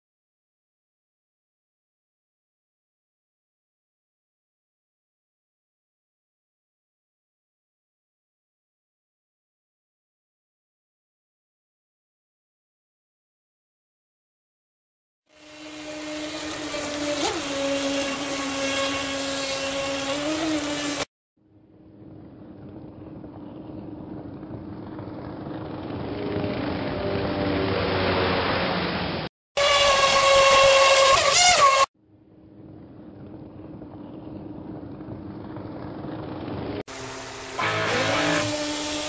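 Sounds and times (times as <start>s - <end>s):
electric motor whine: 15.3s - 21.1s, 36.9s - 39.0s
rushing water: 27.5s - 29.3s.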